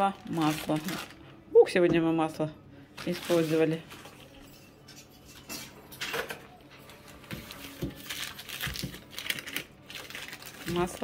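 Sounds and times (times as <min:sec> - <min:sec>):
paper wrapper rustling: 0:00.0 - 0:01.3, 0:03.0 - 0:04.3, 0:06.9 - 0:11.0.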